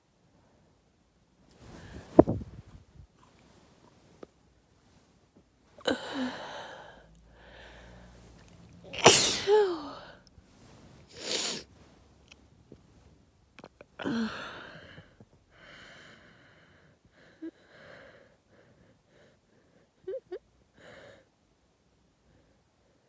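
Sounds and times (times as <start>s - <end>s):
quiet breathing: 0.2s - 8.9s, 9.6s - 20.0s, 20.7s - 21.4s, 22.1s - 23.0s
woman sneezing: 8.9s - 10.1s
small mouth sounds: 13.6s - 14.0s.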